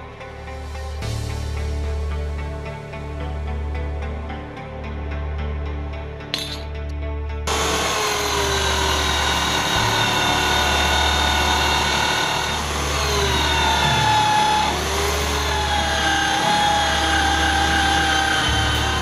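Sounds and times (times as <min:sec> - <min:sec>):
angle grinder grinding metal: 0:06.3 - 0:06.7, 0:07.5 - 0:19.0.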